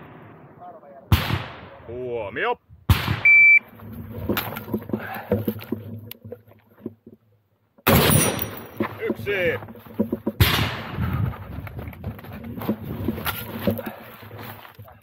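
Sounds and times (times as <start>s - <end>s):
shot timer beep: 3.2s - 3.6s.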